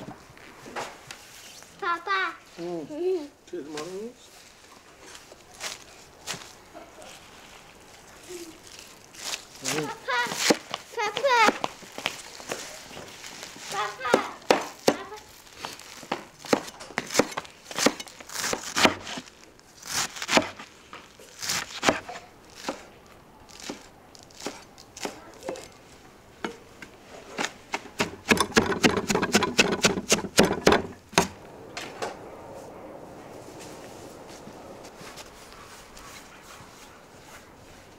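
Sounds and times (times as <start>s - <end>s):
knife chopping on wooden board: 16.1s - 19.1s, 20.0s - 20.6s, 27.4s - 31.3s.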